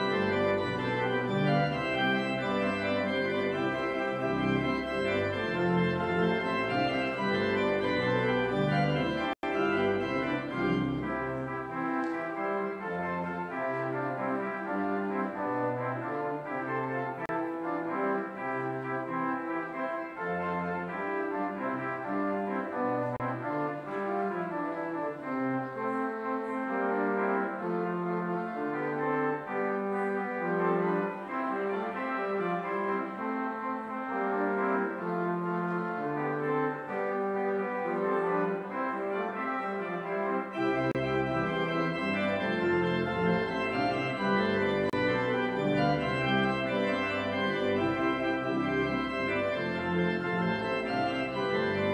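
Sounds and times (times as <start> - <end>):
deep organ bass pedal notes: 0.0 - 11.6, 40.5 - 51.9
church organ chords: 0.0 - 51.9.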